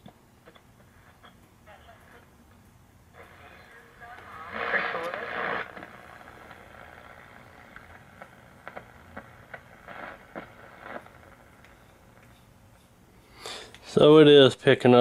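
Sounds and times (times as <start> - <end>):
snatches of radio signals: 0.4 - 2.4, 3.2 - 12.6
shortwave radio static hiss: 0.4 - 14.7
radio station signal: 3.2 - 11.1.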